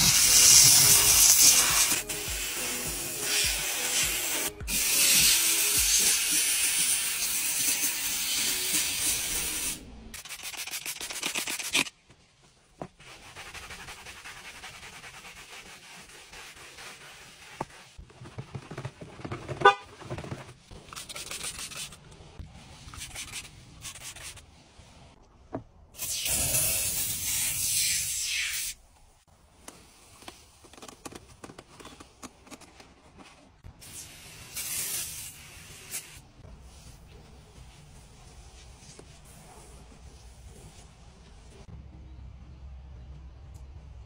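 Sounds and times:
steam cleaner hissing: 0:00.0 - 0:09.8
cloth wiping: 0:12.8 - 0:18.8.

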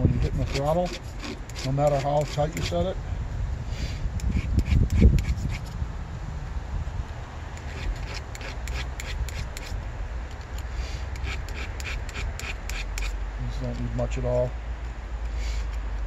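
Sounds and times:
file rasping on metal chain: 0:00.0 - 0:02.8, 0:04.2 - 0:05.8, 0:07.6 - 0:09.8, 0:11.1 - 0:13.2.

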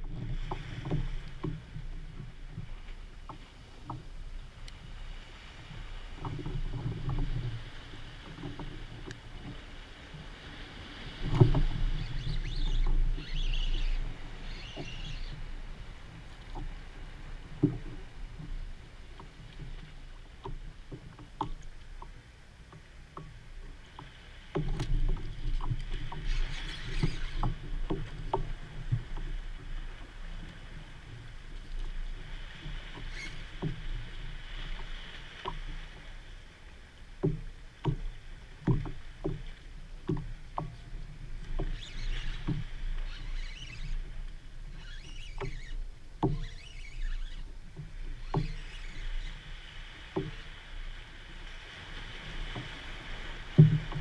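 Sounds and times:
water lapping against kayak hull: 0:00.0 - 0:54.0
small knocks and clicks: 0:03.2 - 0:04.8, 0:17.6 - 0:18.6, 0:19.2 - 0:29.4, 0:37.2 - 0:49.4, 0:53.6 - 0:54.0.

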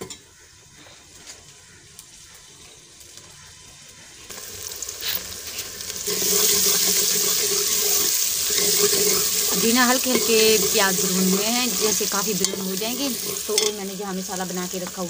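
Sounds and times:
onions sizzling in pot: 0:00.0 - 0:15.0
ladle stirring in metal pot: 0:06.1 - 0:13.9.

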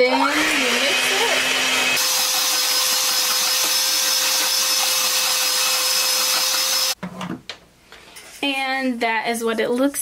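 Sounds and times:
electric hand mixer whirring: 0:00.0 - 0:07.0.

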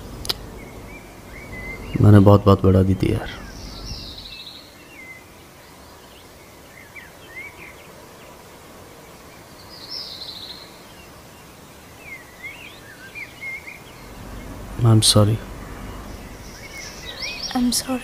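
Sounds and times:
buzzy bird trill: 0:00.0 - 0:05.2, 0:12.0 - 0:18.0
low background hiss: 0:00.0 - 0:18.0
small birds chirping: 0:00.0 - 0:18.0.

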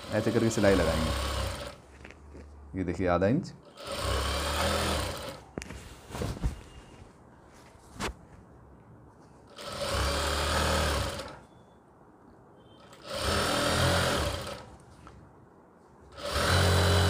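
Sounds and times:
sewing machine stitching: 0:00.0 - 0:01.8, 0:03.7 - 0:05.4, 0:09.5 - 0:11.4, 0:12.8 - 0:14.7, 0:16.2 - 0:17.0.

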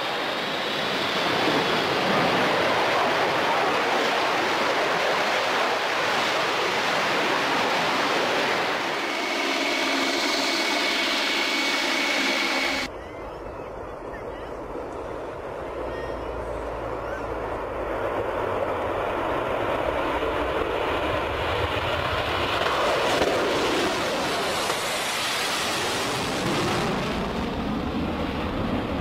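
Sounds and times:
jet engines roaring: 0:00.0 - 0:12.9, 0:13.7 - 0:29.0
multi-tone whine: 0:06.9 - 0:20.8.

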